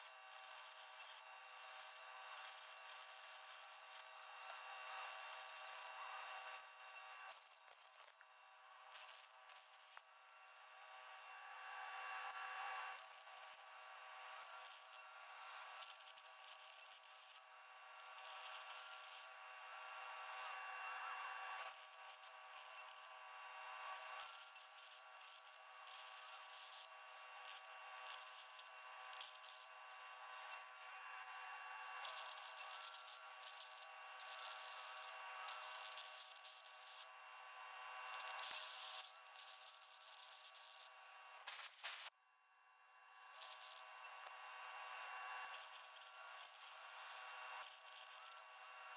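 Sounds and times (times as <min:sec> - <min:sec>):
arc gouging hissing and crackling: 0:39.0 - 0:42.1.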